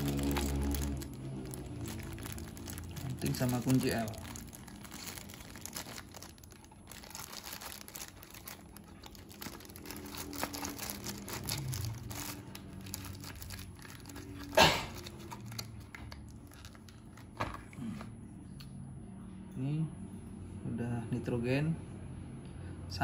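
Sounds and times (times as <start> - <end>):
plastic bag crinkling: 0.0 - 17.4.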